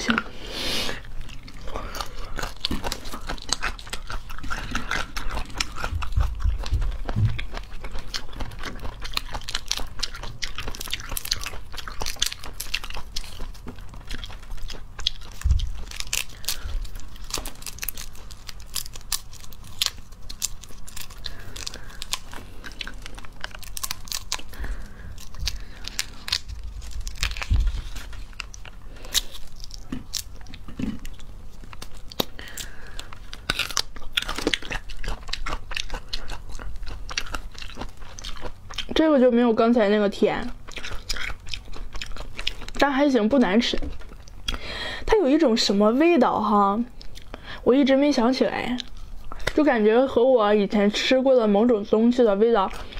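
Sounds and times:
fruit skin cracking: 0:15.0 - 0:36.0.

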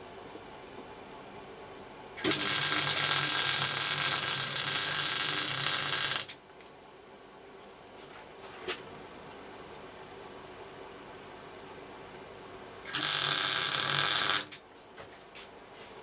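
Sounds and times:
welder arc crackling: 0:02.2 - 0:06.4, 0:12.9 - 0:14.6.

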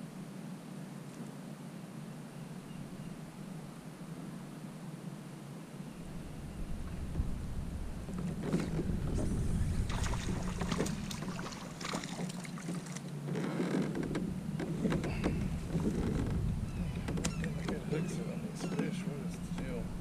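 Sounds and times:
low steady rumble: 0:00.0 - 0:20.0
water splashing against kayak: 0:08.1 - 0:16.5.

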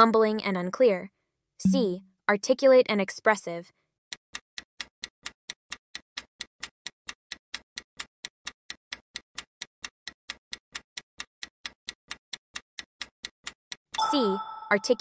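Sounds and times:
rapid clock ticking: 0:04.1 - 0:15.0.

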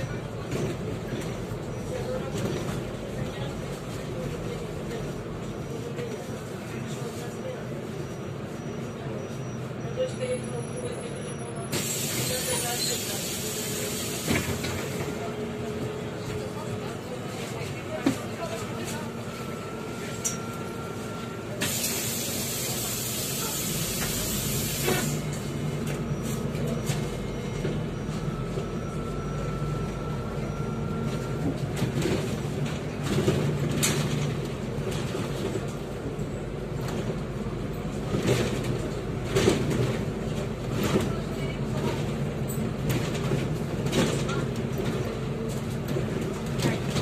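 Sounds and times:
bus engine drone: 0:00.0 - 0:47.0
bus body knocks and rattles: 0:31.3 - 0:47.0.

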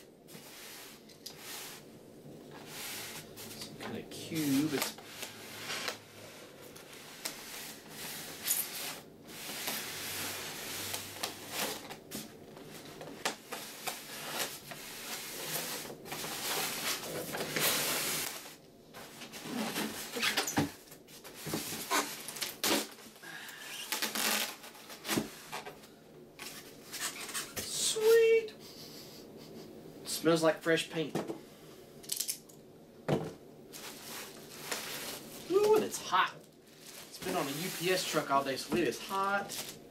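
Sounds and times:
foam rubbing and scraping: 0:02.5 - 0:20.4, 0:21.2 - 0:22.9, 0:33.8 - 0:39.8.

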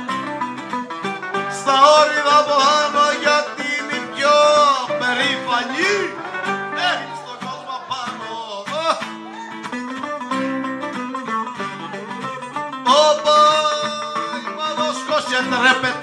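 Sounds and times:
folk music on plucked strings: 0:00.0 - 0:16.0
person singing loudly: 0:01.3 - 0:09.7, 0:11.6 - 0:16.0.

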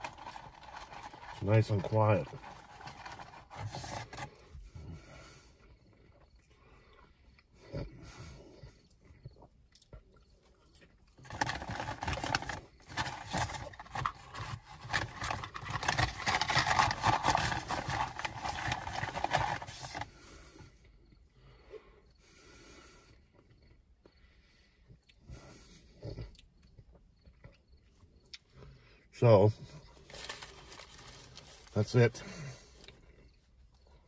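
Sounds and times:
paper packaging rustling: 0:00.0 - 0:04.3, 0:11.2 - 0:20.1, 0:29.9 - 0:32.1.

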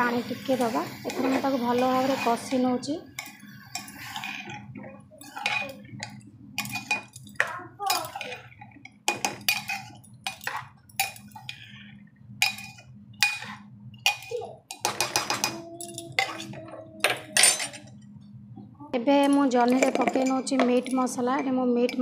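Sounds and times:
low steady hum: 0:00.0 - 0:22.0
metal spoon scraping a pot: 0:00.3 - 0:17.8.

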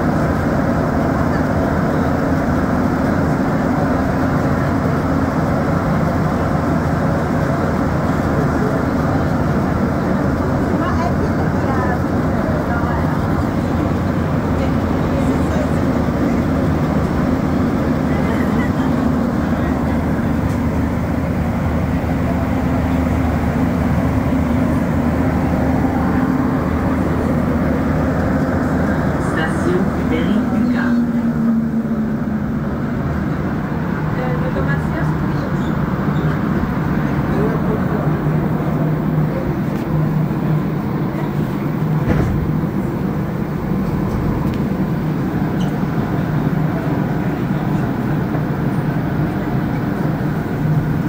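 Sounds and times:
rumble of train tyres on track: 0:00.0 - 0:51.0.

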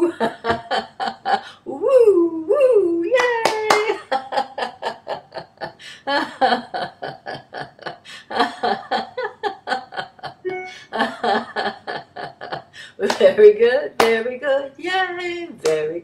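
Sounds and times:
woman laughing heartily: 0:00.0 - 0:01.6, 0:04.0 - 0:12.8.

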